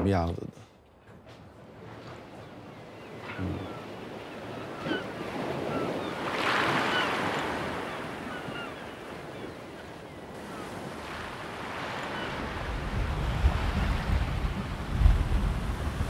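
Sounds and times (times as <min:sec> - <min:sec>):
surf breaking on beach: 0:10.4 - 0:16.0.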